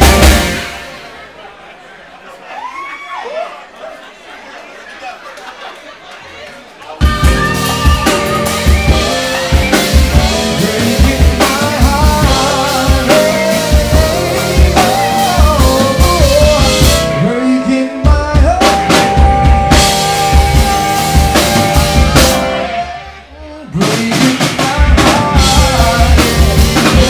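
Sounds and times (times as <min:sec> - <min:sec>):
live band playing: 0:00.0 - 0:01.7, 0:06.9 - 0:27.0
man singing into a microphone: 0:08.0 - 0:27.0.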